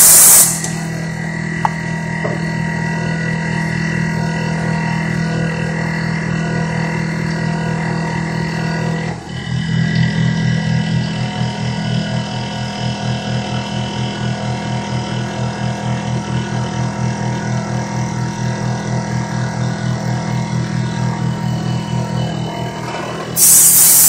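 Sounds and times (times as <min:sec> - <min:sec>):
milling machine cutting metal: 0:21.7 - 0:24.0.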